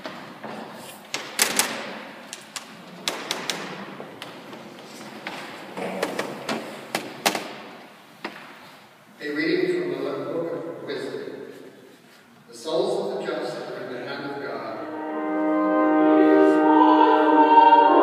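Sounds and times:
knocks and thuds on wooden pews: 0:00.0 - 0:08.6.

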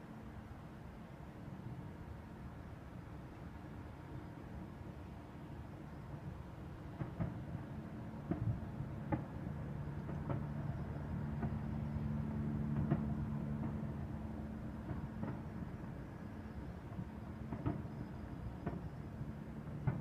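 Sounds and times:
distant fireworks bangs: 0:14.7 - 0:15.8, 0:16.9 - 0:19.0, 0:19.6 - 0:20.0.

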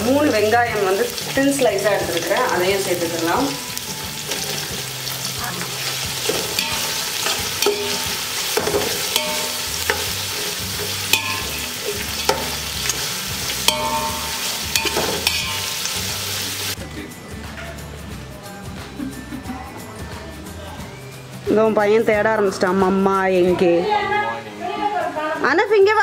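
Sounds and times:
onions sizzling in oil: 0:00.0 - 0:16.8
metal ladle scraping a pot: 0:03.5 - 0:16.5.

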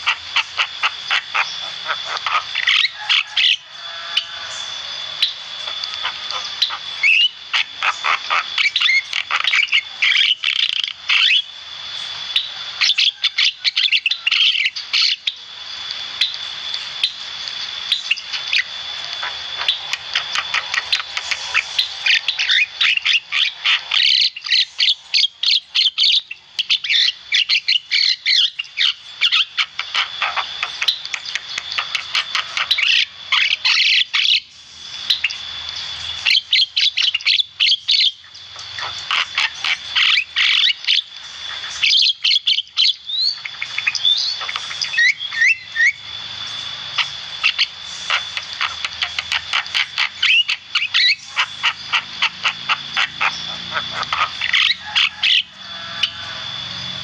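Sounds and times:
myna bird singing: 0:00.0 - 0:57.0.

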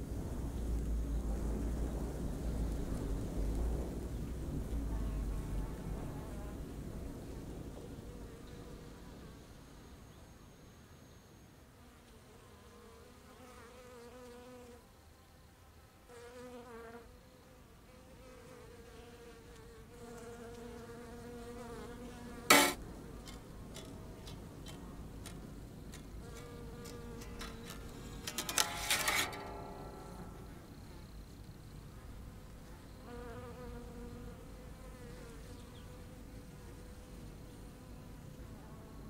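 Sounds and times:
low buzzing hum: 0:21.1 - 0:38.6
sharp loud click: 0:22.5 - 0:22.8.

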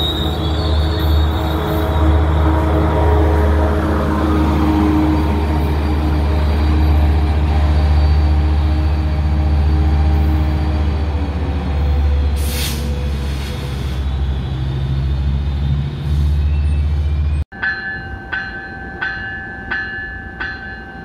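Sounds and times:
air hiss: 0:12.4 - 0:14.0.

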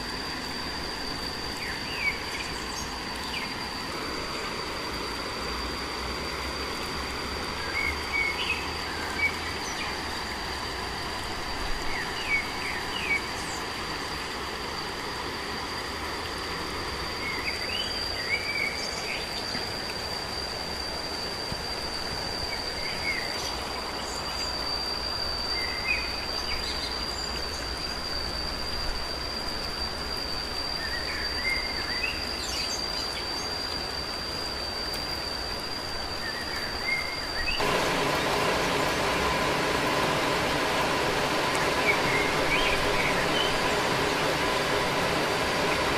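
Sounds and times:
even hiss: 0:00.0 - 0:45.9
high-pitched insect drone: 0:00.0 - 0:45.9
bird chirps: 0:39.7 - 0:45.9.

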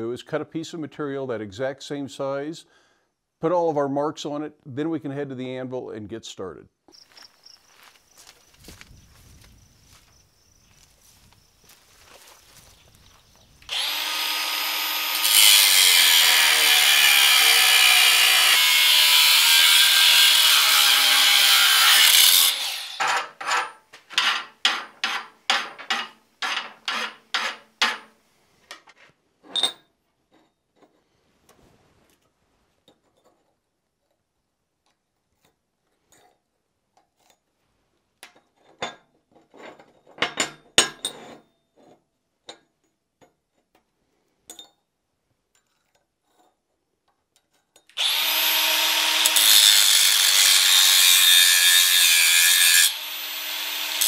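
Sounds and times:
hand file strokes on metal: 0:13.7 - 0:28.1, 0:48.0 - 0:54.0
power saw cutting steel: 0:13.7 - 0:28.1, 0:48.0 - 0:54.0.

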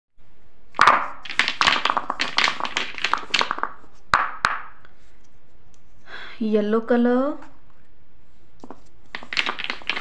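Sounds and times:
plastic bottles knocking on surface: 0:09.2 - 0:10.0.

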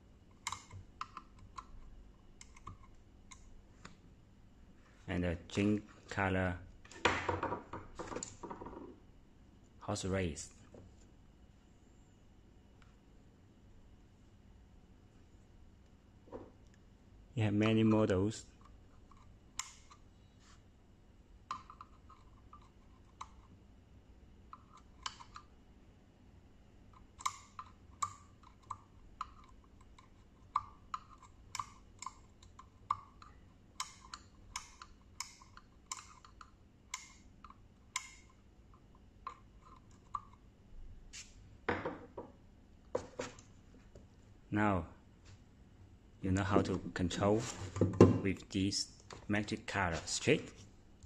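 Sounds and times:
small switches clicking: 0:30.5 - 0:38.3.

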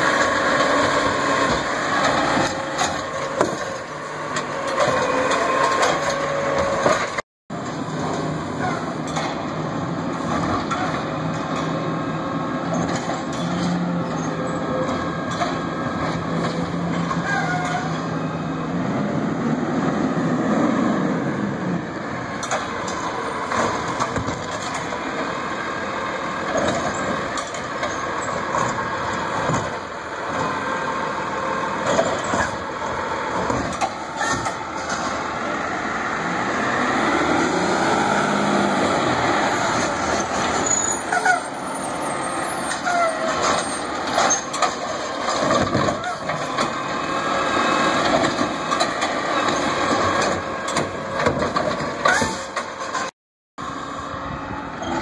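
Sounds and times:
carts banging against metal: 0:00.0 - 0:09.6, 0:33.3 - 0:35.4, 0:42.5 - 0:53.1.

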